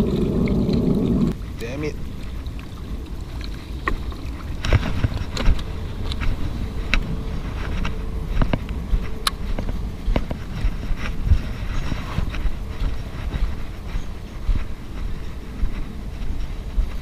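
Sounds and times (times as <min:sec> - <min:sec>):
wind buffeting microphone: 0:00.0 - 0:17.0
gear handling clicks and knocks: 0:03.4 - 0:07.1.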